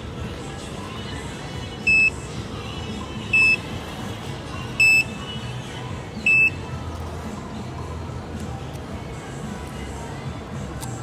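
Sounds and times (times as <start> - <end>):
vending machine short high beeps: 1.8 - 2.2, 3.3 - 3.6, 4.7 - 5.2, 6.2 - 6.6.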